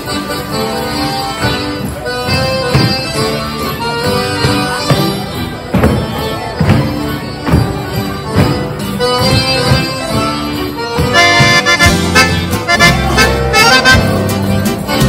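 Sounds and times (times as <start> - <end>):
accordion folk dance music: 0.0 - 15.0
low beat: 4.4 - 15.0.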